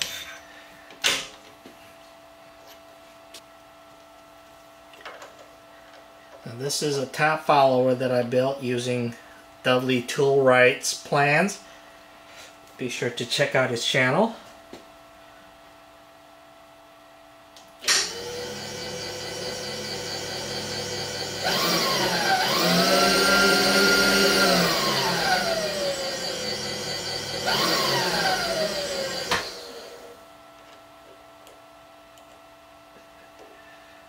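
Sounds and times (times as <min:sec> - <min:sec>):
milling machine motor running: 0:17.9 - 0:30.2
drill bit cutting steel whine: 0:18.0 - 0:30.1.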